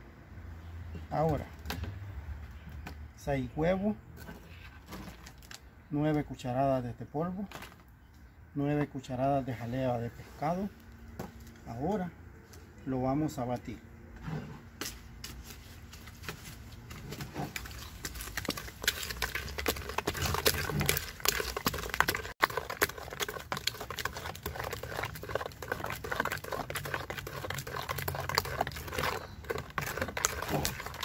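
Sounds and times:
spoon beating mixture in plastic bucket: 0:16.9 - 0:31.0.

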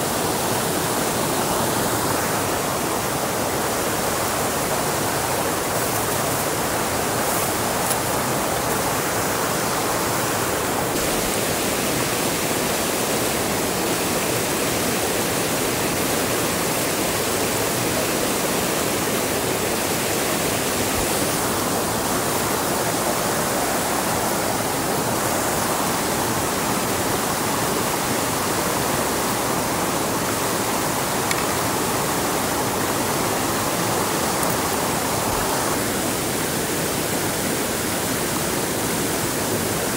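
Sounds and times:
water rushing: 0:00.0 - 0:39.9.

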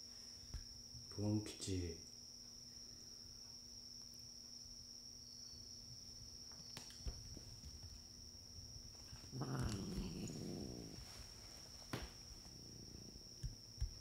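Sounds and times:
crickets trilling: 0:00.0 - 0:14.0
cat growling: 0:09.1 - 0:11.6, 0:12.3 - 0:13.4.

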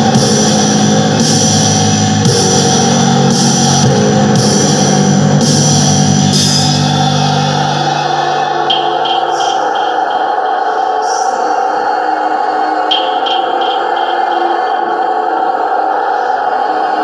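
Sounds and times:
distorted guitar chords: 0:00.0 - 0:10.2
drums: 0:00.0 - 0:10.2
cymbal wash: 0:00.0 - 0:11.6.

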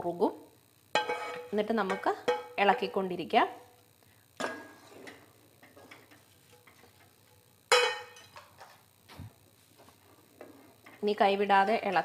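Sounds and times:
spoon scraping metal cookware: 0:01.0 - 0:01.6.

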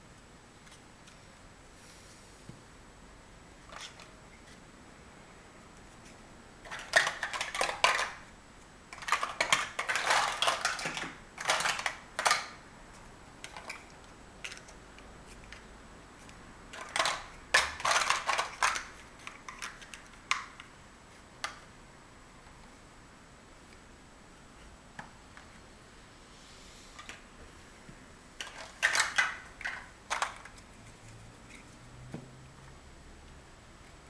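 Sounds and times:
plastic blocks clattering and clicking: 0:03.6 - 0:04.1, 0:06.6 - 0:08.3, 0:08.9 - 0:12.6, 0:13.4 - 0:15.6, 0:16.2 - 0:20.7, 0:28.4 - 0:31.6.

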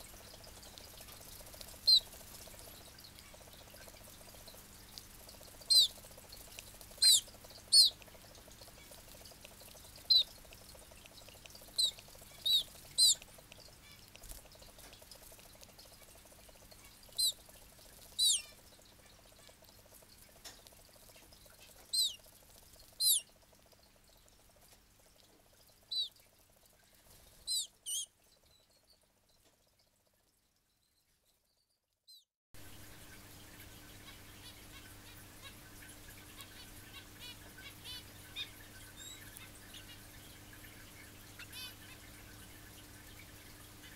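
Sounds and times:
low steady hum: 0:00.0 - 0:31.3
bird chick cheeping: 0:05.7 - 0:06.0, 0:07.0 - 0:08.0, 0:10.1 - 0:10.3, 0:11.8 - 0:13.2, 0:17.2 - 0:17.4, 0:18.2 - 0:18.5, 0:21.9 - 0:22.2, 0:23.0 - 0:23.2, 0:25.9 - 0:26.1, 0:27.5 - 0:28.1.

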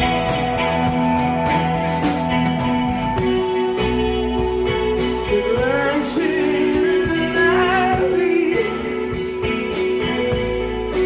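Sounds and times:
live rock band playing: 0:00.0 - 0:11.0
person singing: 0:05.0 - 0:11.0.

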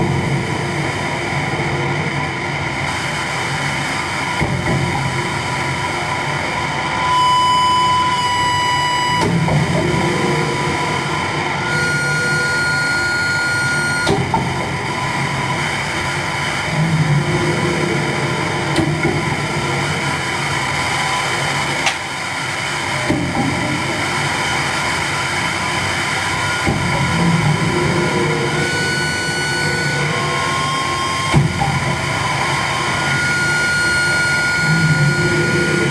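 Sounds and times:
low pulsing rumble: 0:00.0 - 0:35.9
distorted electronic noise: 0:02.8 - 0:21.8, 0:23.6 - 0:35.9
high ringing tones: 0:07.0 - 0:14.1, 0:26.4 - 0:35.9.

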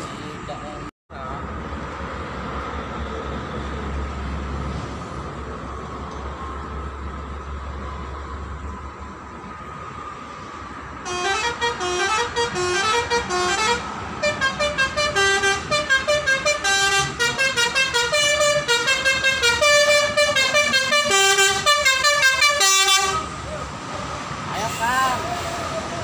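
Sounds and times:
bus horn playing a fast tune: 0:11.0 - 0:23.4.

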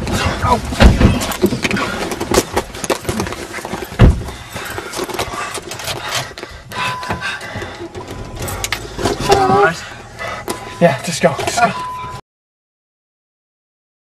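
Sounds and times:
loud thump: 0:00.8 - 0:01.3.

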